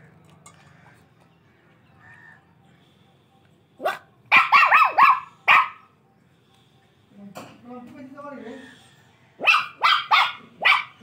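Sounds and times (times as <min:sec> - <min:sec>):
puppy yapping: 0:03.8 - 0:05.8, 0:09.4 - 0:11.0.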